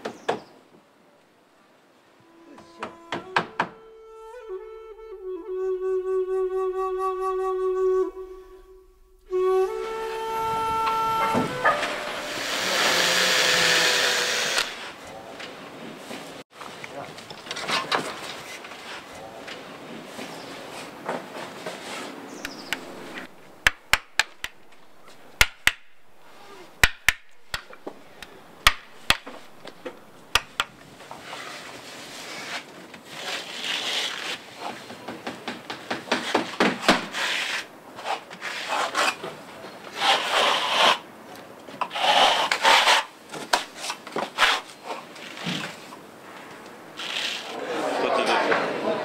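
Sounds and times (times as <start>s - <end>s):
tool scraping and rubbing: 41.9s - 43.1s.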